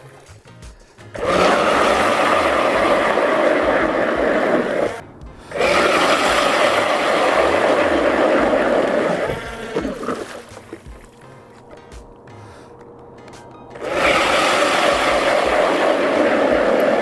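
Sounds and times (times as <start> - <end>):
ice auger grinding through ice: 1.2 - 10.8, 13.8 - 17.0.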